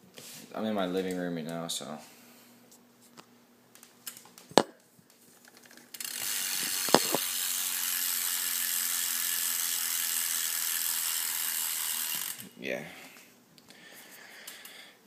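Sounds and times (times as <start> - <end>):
bike hub ratchet clicking: 5.5 - 12.5.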